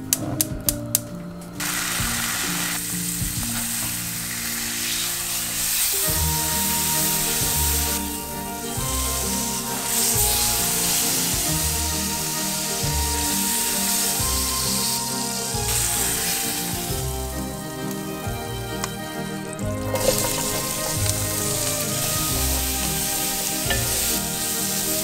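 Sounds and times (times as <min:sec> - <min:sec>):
beef sizzling in skillet: 0:01.6 - 0:17.1, 0:19.9 - 0:25.0
vegetables sizzling and stirred: 0:01.6 - 0:18.0, 0:19.7 - 0:25.0.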